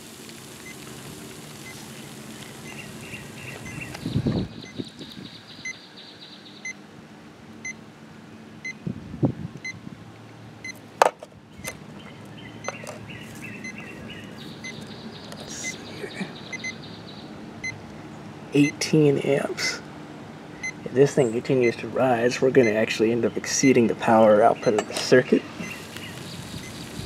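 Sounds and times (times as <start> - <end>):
boiler fizzing and buzzing: 0.0 - 5.7, 25.5 - 27.0
low electrical hum: 0.0 - 27.0.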